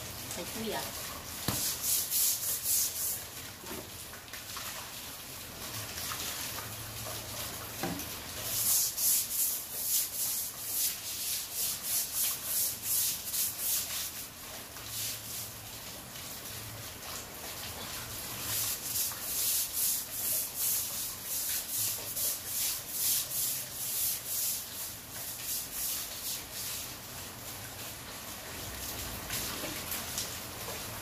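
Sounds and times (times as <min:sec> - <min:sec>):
brush scrubbing wet concrete: 0:00.4 - 0:03.4, 0:08.4 - 0:15.6, 0:18.2 - 0:27.0.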